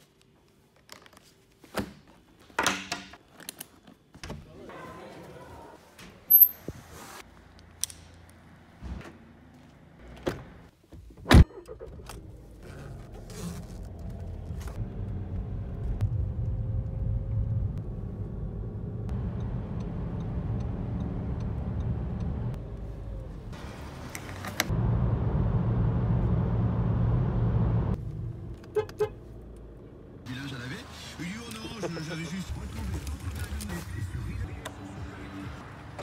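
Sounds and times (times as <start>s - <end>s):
car engine and road noise: 7.2s - 36.0s.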